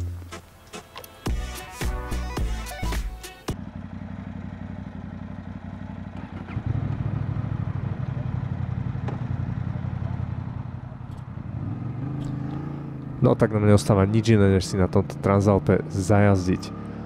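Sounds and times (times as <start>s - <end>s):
motorcycle engine idling: 3.5s - 15.3s.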